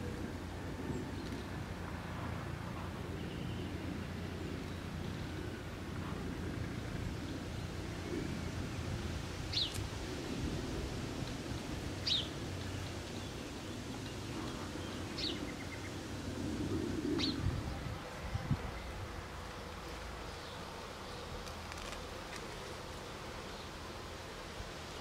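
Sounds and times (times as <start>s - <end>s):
low outdoor background: 0.0s - 25.0s.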